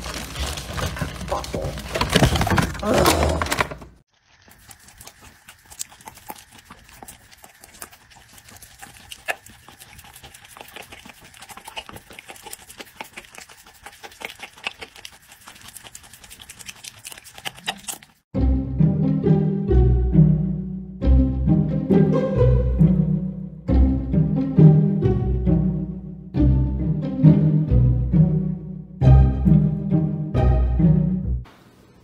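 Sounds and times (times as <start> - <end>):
dog licking and chomping: 4.2 - 18.2.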